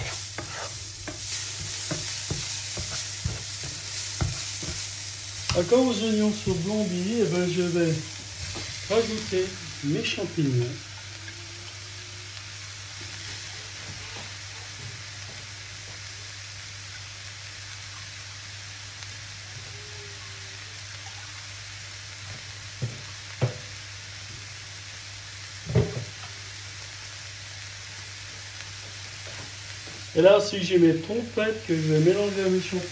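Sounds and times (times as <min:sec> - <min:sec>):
spatula stirring in a pan: 0:00.0 - 0:06.7
vegetables sizzling in a frying pan: 0:00.0 - 0:32.9.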